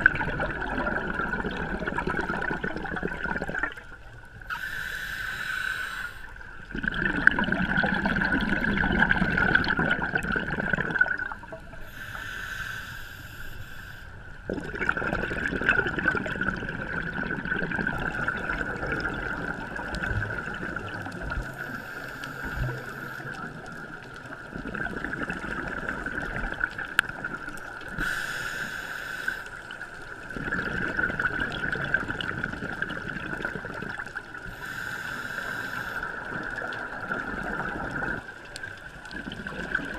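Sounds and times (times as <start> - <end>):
regulator hissing inhales: 4.5 - 6.4, 11.8 - 14.2, 21.6 - 23.4, 28.0 - 29.7, 34.5 - 36.2
bubbling exhaust: 6.7 - 12.0, 14.5 - 23.7.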